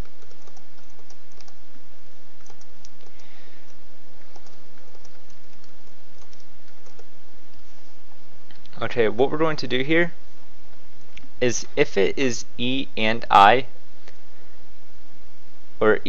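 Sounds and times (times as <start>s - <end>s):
keyboard typing clicks: 0.0s - 1.6s, 2.4s - 7.6s.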